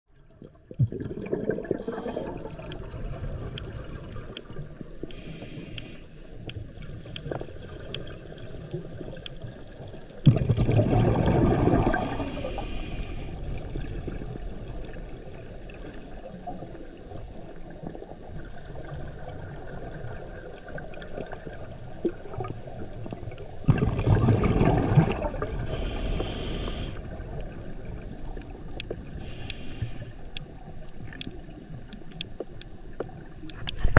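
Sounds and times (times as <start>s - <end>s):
exhaled bubbles underwater: 0.1s - 5.4s, 6.6s - 33.9s
faint clicks: 2.6s - 10.3s, 19.9s - 24.4s, 25.7s - 33.9s
breath through regulator hissing: 5.0s - 6.4s, 11.8s - 13.5s, 25.5s - 27.1s, 29.2s - 30.3s.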